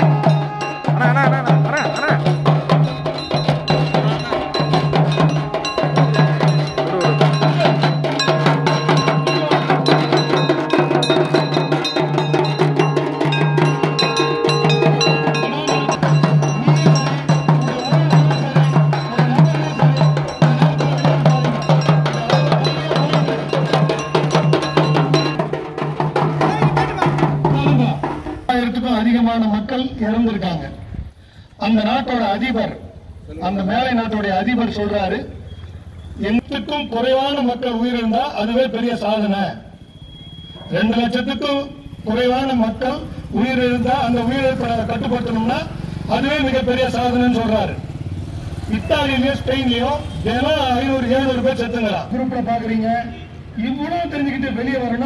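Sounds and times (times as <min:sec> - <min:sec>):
brass gongs struck rapidly: 0:00.0 - 0:28.4.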